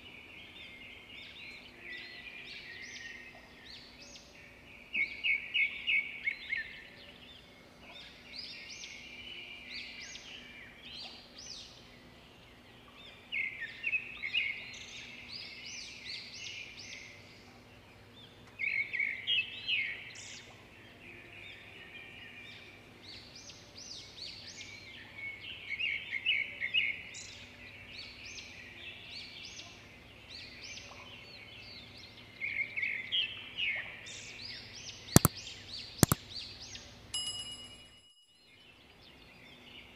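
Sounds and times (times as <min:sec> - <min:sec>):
small birds chirping: 0:34.5 - 0:36.9.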